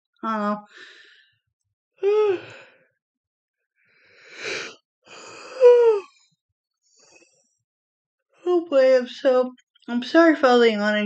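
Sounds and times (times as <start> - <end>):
woman yawning: 5.4 - 6.0.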